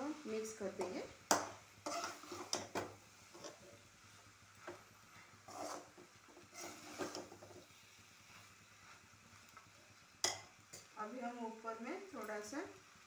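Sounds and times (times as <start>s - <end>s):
metal spatula scraping a pan: 1.8s - 3.8s, 5.4s - 7.7s.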